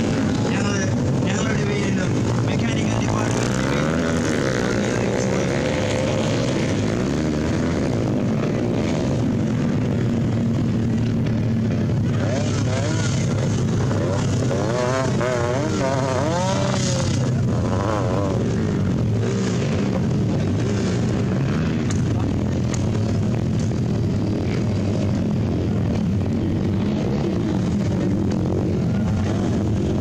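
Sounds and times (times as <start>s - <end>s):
motorcycle engines revving: 0.0s - 30.0s.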